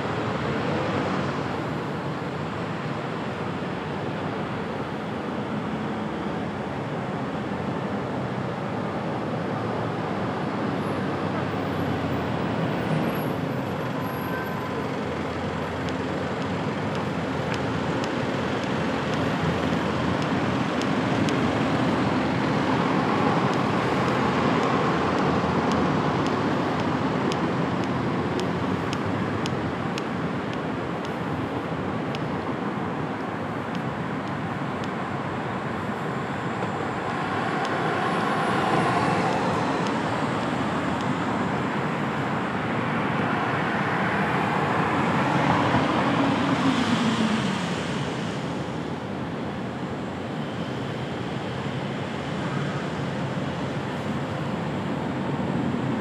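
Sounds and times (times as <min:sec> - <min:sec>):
city street traffic: 0:00.0 - 0:56.0
vehicle passing: 0:35.9 - 0:41.3.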